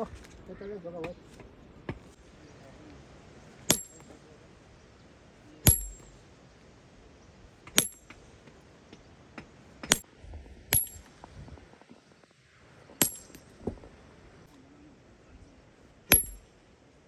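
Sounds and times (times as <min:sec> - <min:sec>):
hammer blows with metallic ring: 0:03.7 - 0:04.2, 0:05.6 - 0:06.2, 0:07.8 - 0:08.2, 0:10.7 - 0:11.1, 0:13.0 - 0:13.5, 0:16.1 - 0:16.5.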